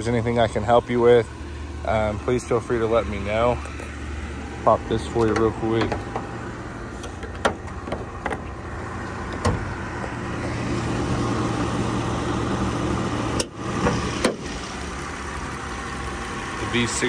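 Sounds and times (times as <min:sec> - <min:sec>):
car engine idling: 0:00.0 - 0:17.0
hood clacking open: 0:05.0 - 0:06.4, 0:07.0 - 0:10.2
car hood latch clicks: 0:09.3 - 0:09.7.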